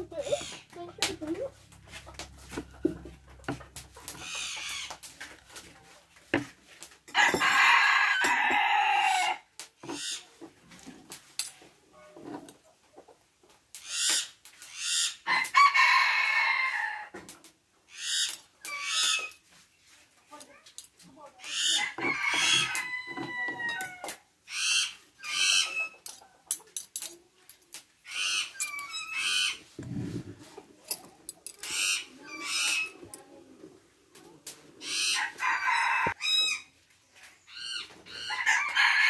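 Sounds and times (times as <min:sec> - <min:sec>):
rooster crowing: 0:07.2 - 0:09.4, 0:15.3 - 0:17.1, 0:21.8 - 0:24.0, 0:35.1 - 0:36.5, 0:38.2 - 0:39.0.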